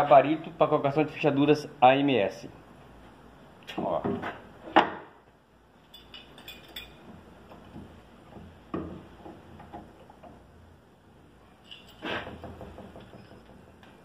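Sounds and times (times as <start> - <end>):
jig knocking on door: 12.4 - 13.7.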